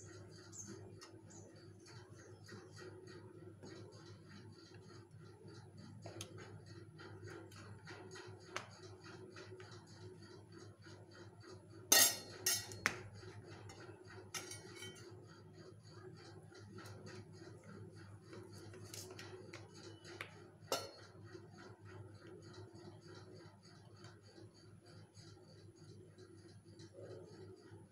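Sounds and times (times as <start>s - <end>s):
faint steady ticking: 0.0s - 11.8s.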